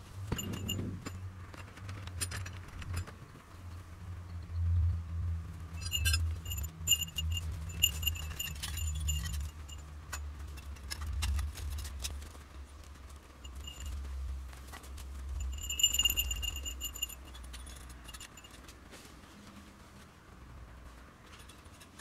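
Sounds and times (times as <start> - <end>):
steady low rumble: 0.0 - 18.9
metal poles clinking: 0.2 - 3.4, 5.8 - 12.2, 13.3 - 18.8.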